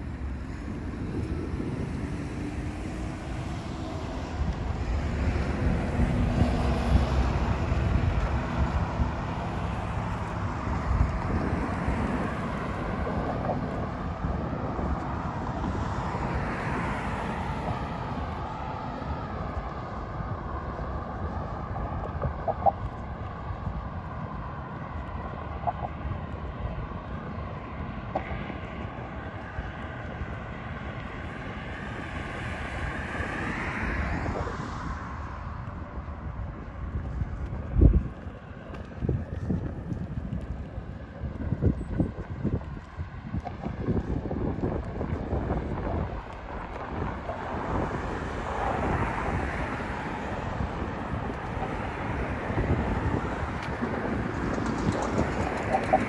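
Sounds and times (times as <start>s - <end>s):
distant engine drone: 0.0s - 56.0s
wind on microphone: 0.0s - 56.0s.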